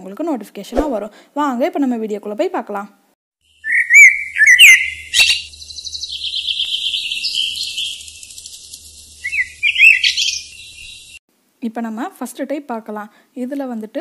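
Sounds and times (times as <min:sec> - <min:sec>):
bird trill: 0:03.5 - 0:11.2
bird chirping and whistling: 0:03.6 - 0:11.2.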